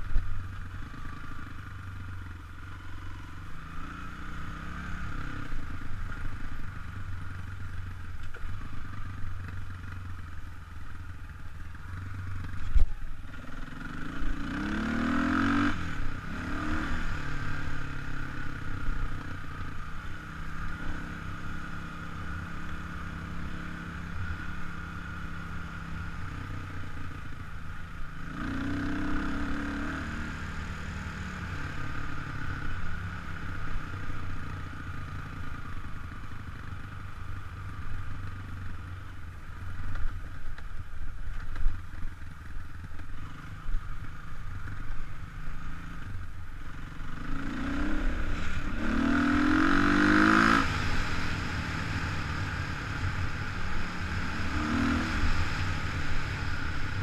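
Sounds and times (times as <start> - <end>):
dirt bike engine revving: 13.7 - 17.8, 47.0 - 57.0.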